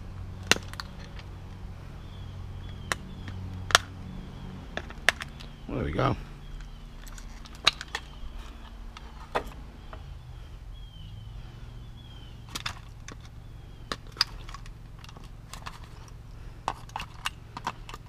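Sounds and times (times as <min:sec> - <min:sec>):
steady low hum: 0:00.0 - 0:18.0
sharp clicks and knocks: 0:06.6 - 0:10.1.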